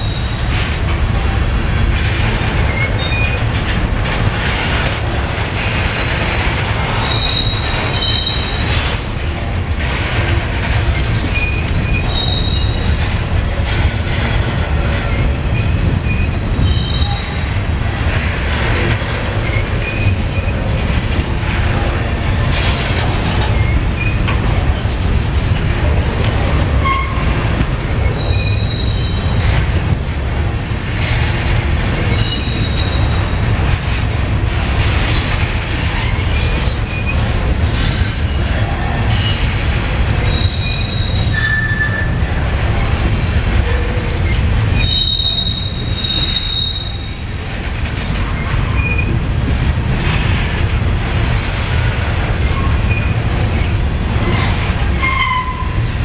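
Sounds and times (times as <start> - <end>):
train wheels rumbling on rail: 0.0 - 56.0
high-pitched wheel squeals: 44.8 - 47.2.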